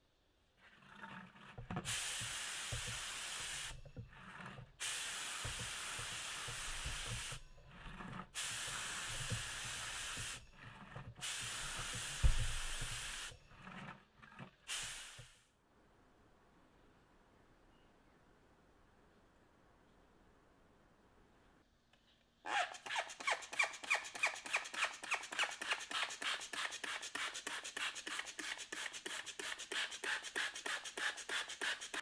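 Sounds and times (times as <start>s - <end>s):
aerosol spray can spraying: 1.9s - 3.8s, 4.8s - 7.4s, 8.4s - 10.4s, 11.2s - 13.3s, 14.7s - 15.4s, 22.8s - 32.0s.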